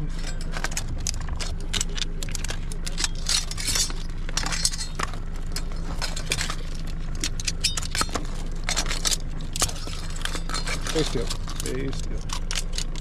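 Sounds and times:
metal tongs clinking in trap: 0.0s - 13.0s
steady low rumble: 0.0s - 13.0s.

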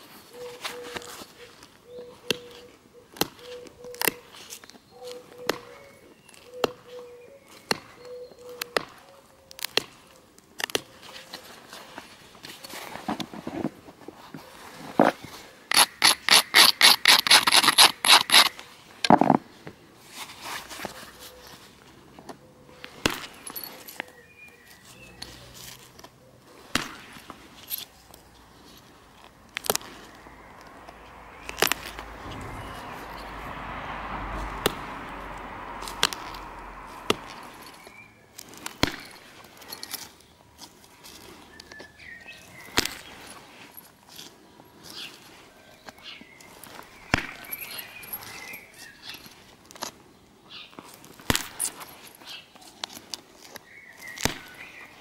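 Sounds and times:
stone scraping flint edge: 15.7s - 18.6s.

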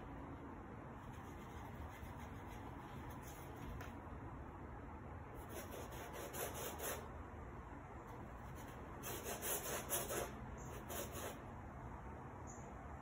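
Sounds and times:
paintbrush scrubbing on canvas: 1.0s - 3.8s, 5.4s - 7.1s, 8.4s - 11.4s.

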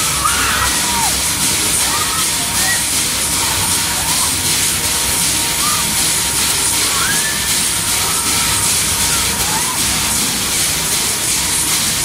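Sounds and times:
high cries: 0.0s - 1.2s, 5.4s - 6.1s, 6.7s - 9.8s
fairground music: 0.0s - 12.0s
fairground ride hiss and rush: 0.0s - 12.0s.

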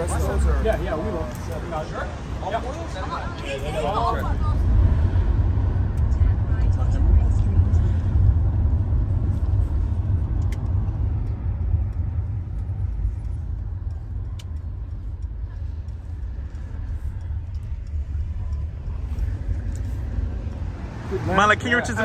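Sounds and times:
road vehicle rumble: 0.0s - 22.0s
faint clicks: 10.1s - 20.7s.

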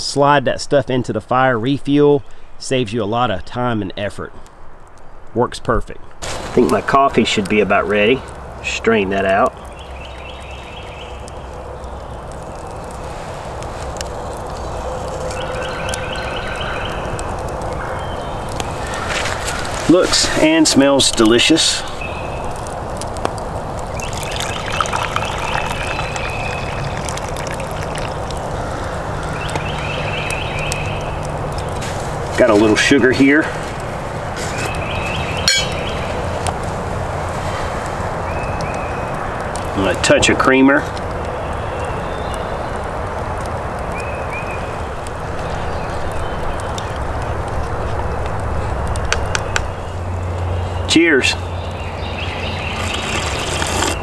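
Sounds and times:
steady hiss: 6.2s - 9.5s, 18.5s - 29.2s
coffee trickling into wooden cup: 22.5s - 29.9s, 52.4s - 54.0s.

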